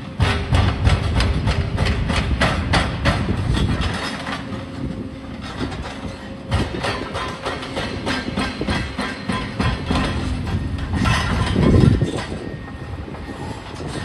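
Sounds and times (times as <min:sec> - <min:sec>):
excavator engine rumble: 0:00.0 - 0:14.0
metallic clanks: 0:05.4 - 0:12.5.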